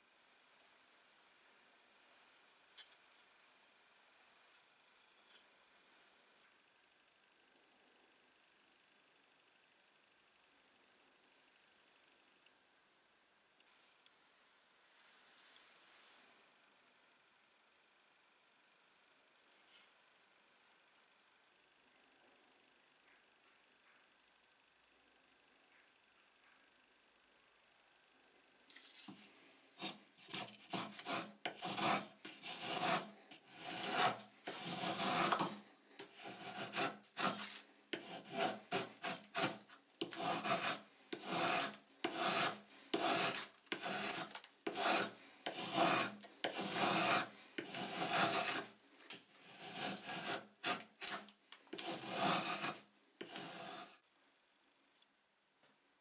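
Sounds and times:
drawknife scraping wood: 28.7s - 54.0s.

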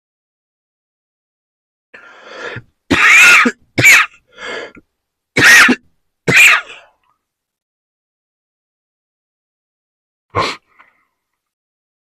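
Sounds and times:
person inhaling: 2.0s - 2.7s, 4.3s - 4.8s
person coughing: 2.9s - 4.2s, 5.4s - 6.9s.

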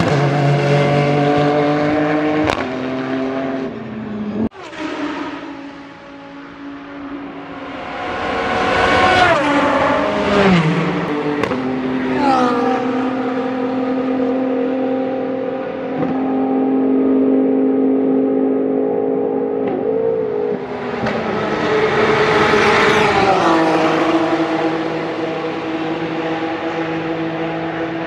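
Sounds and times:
racing cars passing at speed: 0.0s - 28.0s
steady high engine note: 12.1s - 19.6s.

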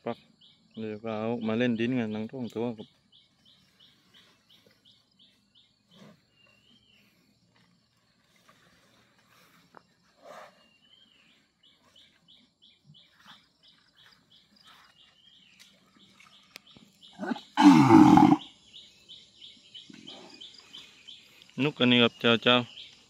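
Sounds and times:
bull bellowing: 17.2s - 18.4s
bull grunt: 17.2s - 18.4s
horns scraping loose earth: 17.2s - 18.4s.

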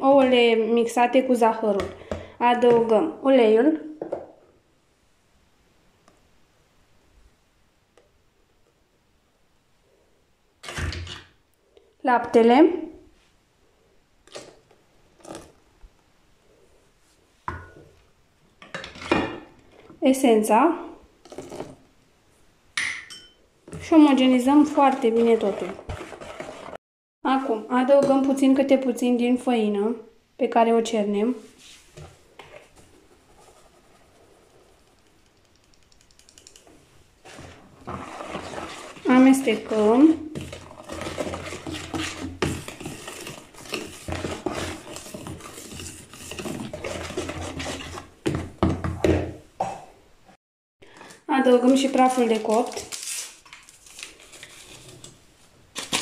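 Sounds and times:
whisk scraping in a bowl: 24.2s - 26.8s, 37.2s - 48.2s.

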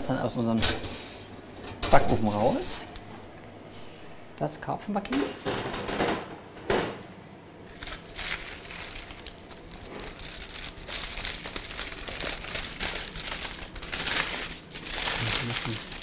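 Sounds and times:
aluminium foil crinkling: 7.7s - 16.0s.

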